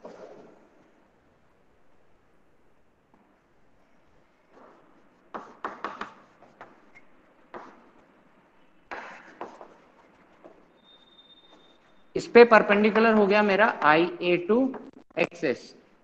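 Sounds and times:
chalk tapping and scraping: 4.0s - 14.1s.

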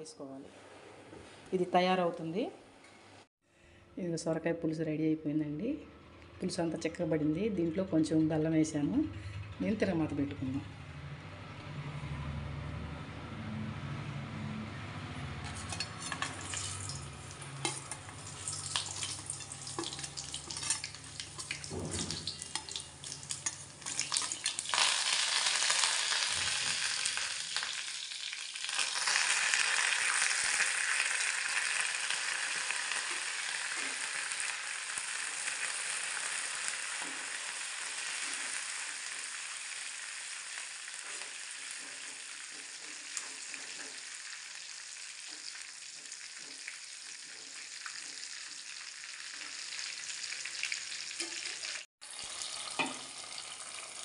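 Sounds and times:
loud sizzle: 15.0s - 54.0s
seeds crackling in hot oil: 15.3s - 54.0s
steel ladle stirring: 15.4s - 24.8s.

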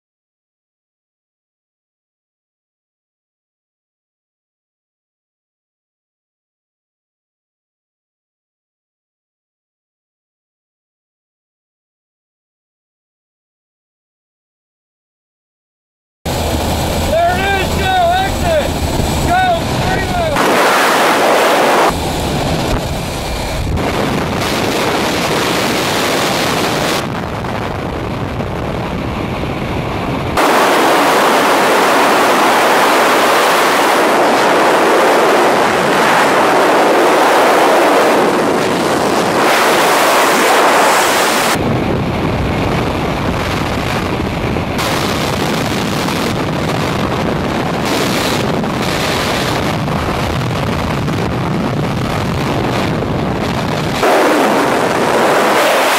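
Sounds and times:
wind buffeting microphone: 16.3s - 55.9s.

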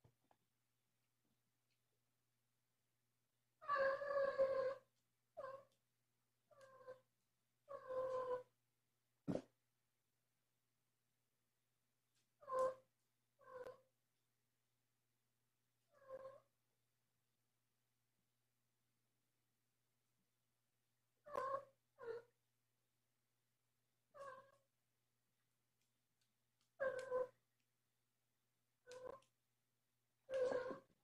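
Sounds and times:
cat meowing: 26.8s - 27.4s, 30.3s - 30.8s.

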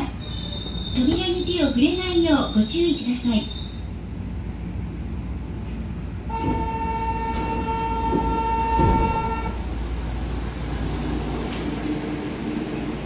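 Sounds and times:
stopped train humming: 0.0s - 13.0s
train doors opening release: 6.3s - 9.6s.

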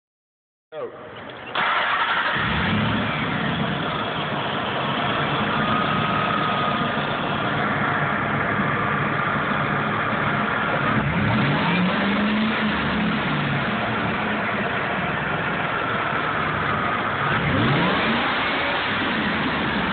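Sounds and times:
supercharged engine idling: 1.2s - 19.9s.

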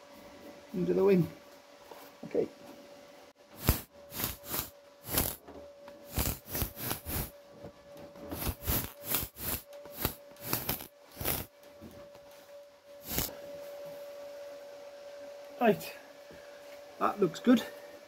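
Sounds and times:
welder crackling bursts: 3.6s - 5.4s, 6.1s - 7.3s, 8.3s - 11.5s, 13.0s - 13.3s.

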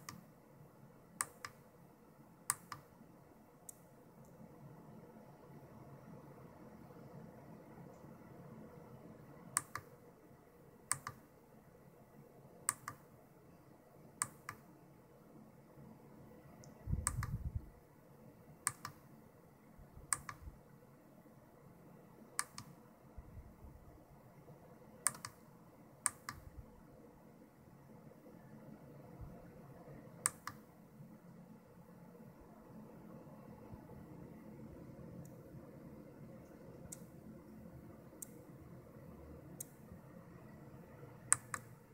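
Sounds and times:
pushbutton clicking: 17.0s - 17.4s.

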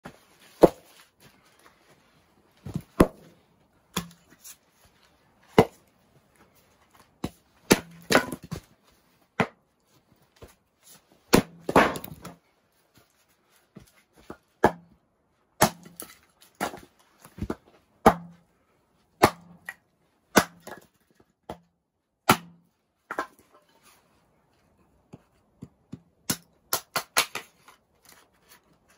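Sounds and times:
axe splitting firewood: 0.4s - 1.1s, 2.6s - 4.6s, 5.4s - 5.9s, 6.9s - 8.7s, 11.3s - 12.4s, 15.6s - 18.4s, 19.2s - 23.8s, 25.5s - 28.9s.

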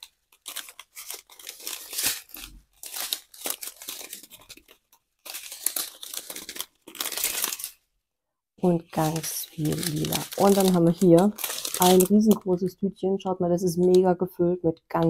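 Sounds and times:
plastic bags crinkling: 0.0s - 7.9s, 8.6s - 12.8s.

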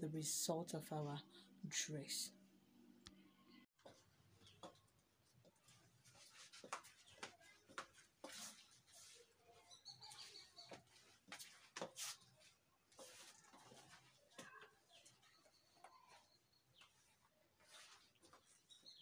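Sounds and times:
faint clicks and rustles: 3.8s - 19.0s
bird chirp: 9.4s - 11.3s, 14.4s - 19.0s.

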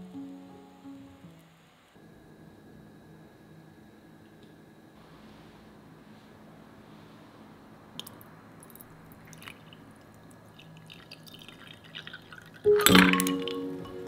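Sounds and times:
faint drips and ticks: 8.0s - 13.6s
liquid and ice splashing in cup: 8.7s - 14.0s.

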